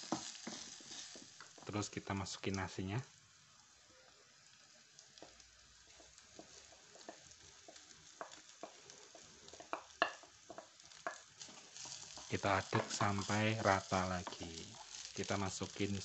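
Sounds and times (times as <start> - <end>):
wooden spatula scraping and tapping: 0.0 - 1.7, 5.2 - 15.8
hot oil sizzling: 0.0 - 16.0.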